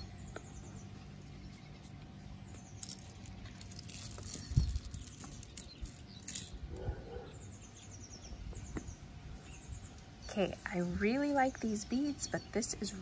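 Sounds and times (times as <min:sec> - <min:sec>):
small bird chirping: 0:00.0 - 0:13.0
glass beads clicking and rustling: 0:02.5 - 0:06.7.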